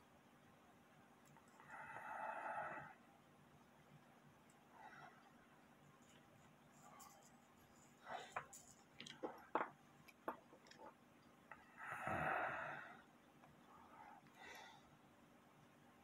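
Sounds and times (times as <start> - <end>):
small metal clicks and taps: 8.4 - 11.0
heavy breath out: 11.8 - 13.1.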